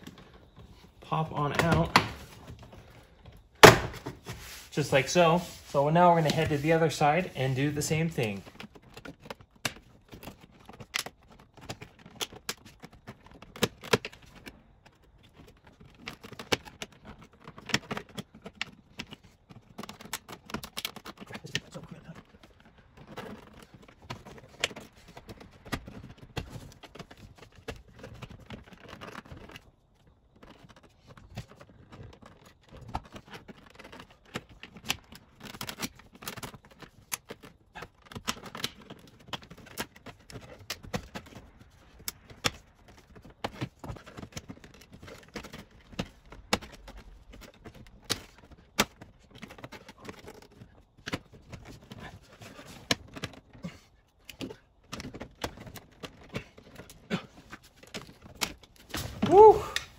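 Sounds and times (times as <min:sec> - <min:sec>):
pry tool scraping plastic: 0:05.2 - 0:59.9.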